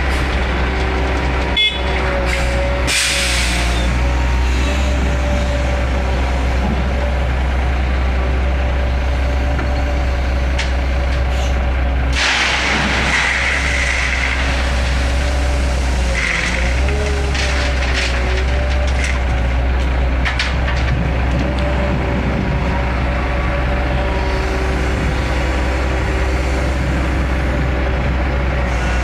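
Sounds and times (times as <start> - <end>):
diesel engine rumbling under load: 0.0 - 29.0
loud rushing noise: 12.1 - 16.6.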